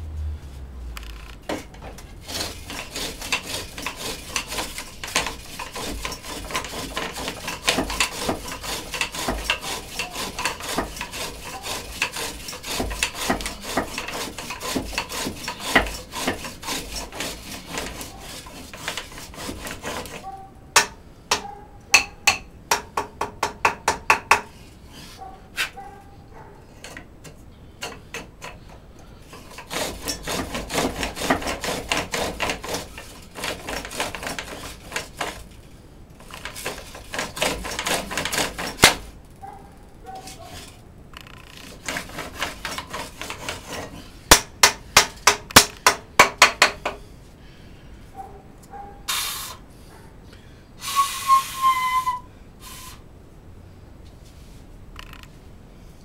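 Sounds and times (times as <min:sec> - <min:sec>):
lathe bit scraping wood: 0:02.1 - 0:20.3, 0:29.3 - 0:35.5, 0:36.2 - 0:39.1, 0:40.5 - 0:44.2
sharp knocks and taps: 0:20.8 - 0:24.5, 0:44.3 - 0:47.0.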